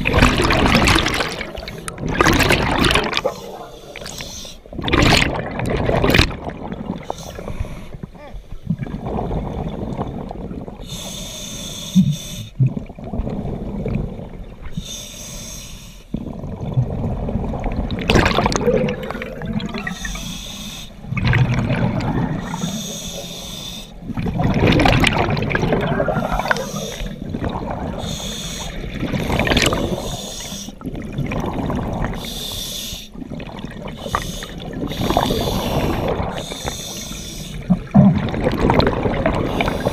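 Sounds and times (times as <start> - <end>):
bubbling exhalations: 0.0 - 10.8, 16.2 - 20.4, 21.0 - 23.3, 24.0 - 32.4, 33.2 - 39.9
hissing regulator inhalations: 10.9 - 12.6, 14.8 - 16.1, 19.8 - 21.1, 22.4 - 24.0, 26.2 - 27.2, 28.0 - 30.8, 32.1 - 33.2, 33.9 - 37.7, 39.5 - 39.9.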